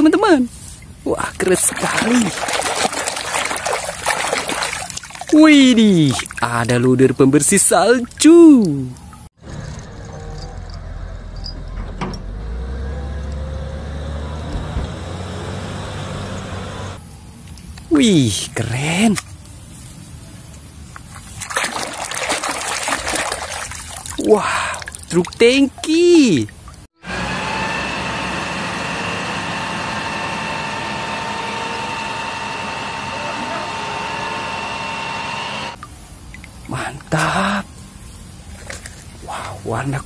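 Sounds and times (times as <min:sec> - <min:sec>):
diesel engine droning: 0:09.4 - 0:17.1, 0:27.0 - 0:35.8
steady high whine: 0:27.0 - 0:35.8.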